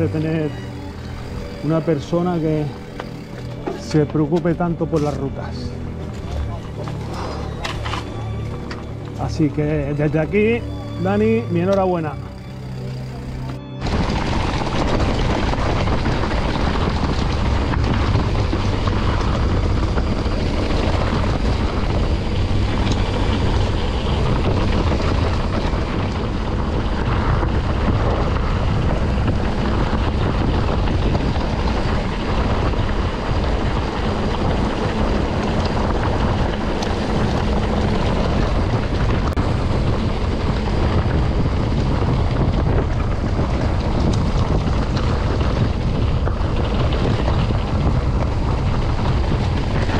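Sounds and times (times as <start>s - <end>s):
mountain bike tyres on trail: 0.0s - 49.9s
wind on microphone: 12.2s - 49.9s.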